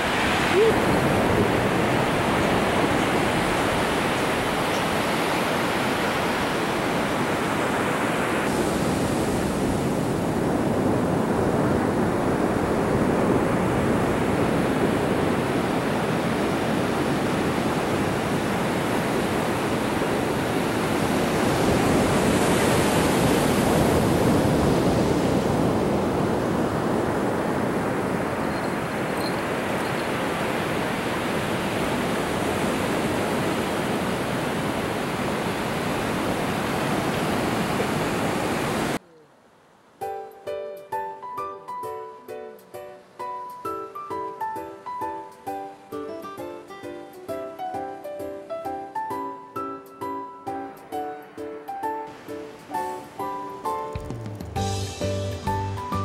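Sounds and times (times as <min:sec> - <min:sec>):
ocean surf breaking: 0:00.0 - 0:39.0, 0:50.6 - 0:54.8.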